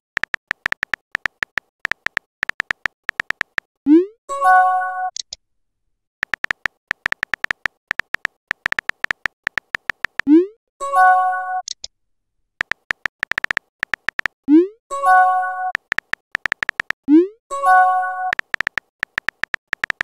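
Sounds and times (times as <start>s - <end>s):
keyboard tapping clicks: 0.2s - 3.7s, 6.2s - 10.3s, 12.6s - 14.4s, 15.7s - 17.0s, 18.3s - 20.0s
chat app chime: 10.8s - 11.6s, 14.9s - 15.8s, 17.5s - 18.4s.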